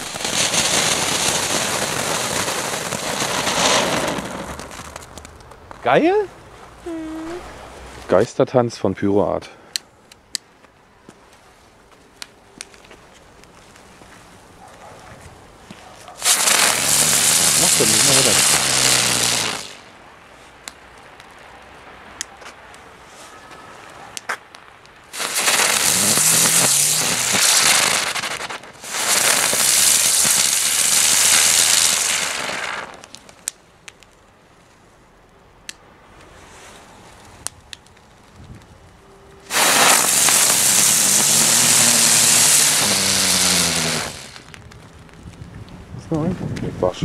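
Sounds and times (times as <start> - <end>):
fireworks hissing: 0.0 - 5.1, 16.2 - 20.0, 25.1 - 33.4, 39.4 - 44.6
small pops and crackles: 2.4 - 5.8, 24.1 - 34.3, 37.1 - 38.8, 39.5 - 45.8.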